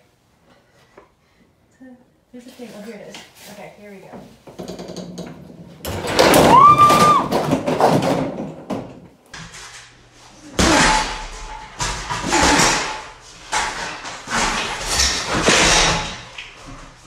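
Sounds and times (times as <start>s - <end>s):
metal stand rattling and clanking: 10.8s - 17.0s.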